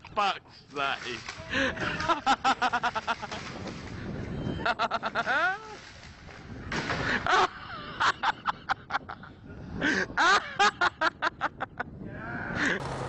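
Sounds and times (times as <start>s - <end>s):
person laughing hard: 1.5s - 3.5s, 7.0s - 12.8s.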